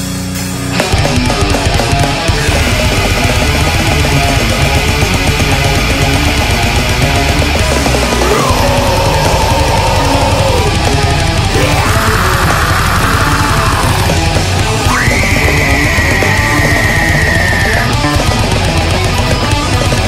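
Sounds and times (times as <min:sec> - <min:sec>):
deathcore music with distorted guitars: 0:00.0 - 0:20.0.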